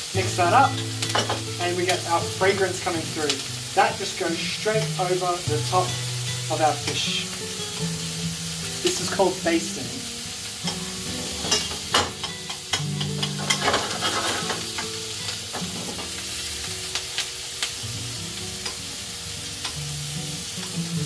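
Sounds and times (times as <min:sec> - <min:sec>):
butter sizzling in a frying pan: 0:00.0 - 0:21.0
metal spoon clinking on pan: 0:11.4 - 0:14.2.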